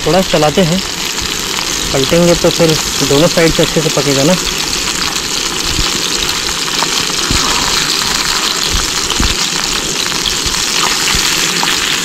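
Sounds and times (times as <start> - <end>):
chicken sizzling in a pan: 0.0 - 12.0
low thumps: 8.7 - 9.5.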